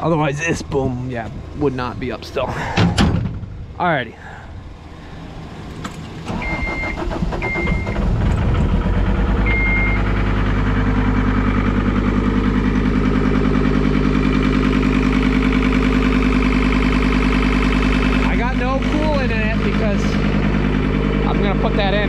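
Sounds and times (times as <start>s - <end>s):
diesel engine starting and idling: 0.0s - 22.0s
short warning beeps: 6.3s - 8.0s, 9.5s - 10.1s.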